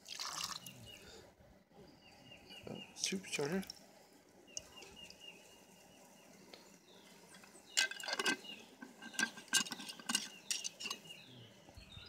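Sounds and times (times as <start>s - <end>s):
metallic clinks of pot and lid: 7.8s - 11.1s.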